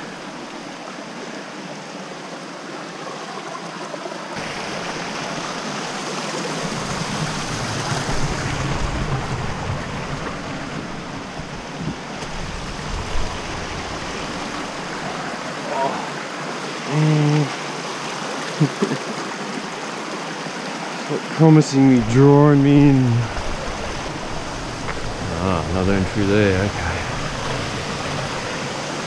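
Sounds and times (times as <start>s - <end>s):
creek water rushing over rocks: 0.0s - 29.0s.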